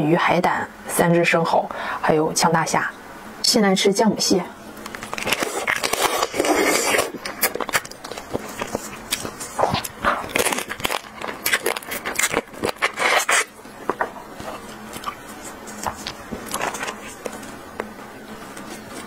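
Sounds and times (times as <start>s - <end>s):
crab shell crackling: 4.8s - 17.6s.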